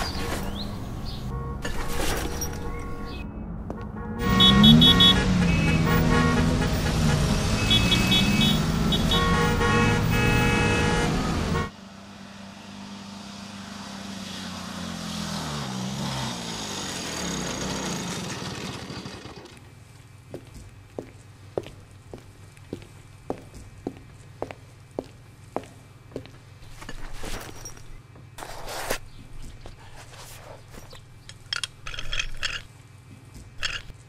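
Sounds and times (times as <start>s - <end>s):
vehicle engine revving: 0.0s - 19.5s.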